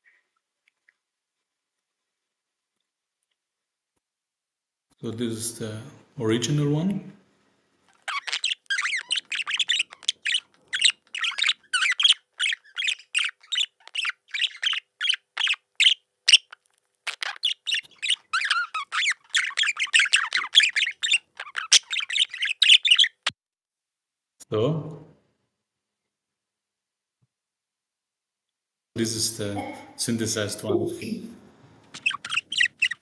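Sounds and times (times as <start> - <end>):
budgerigar chattering warble: 7.9 - 23.3, 31.9 - 33.0.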